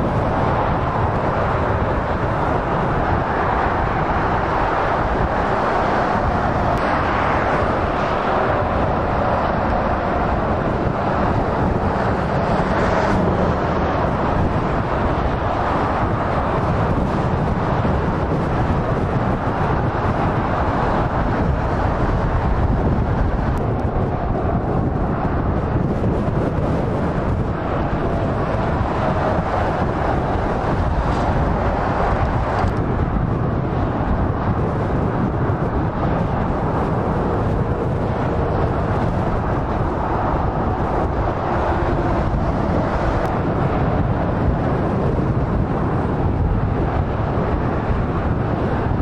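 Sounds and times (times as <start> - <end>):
motorway traffic passing: 0.0 - 49.0.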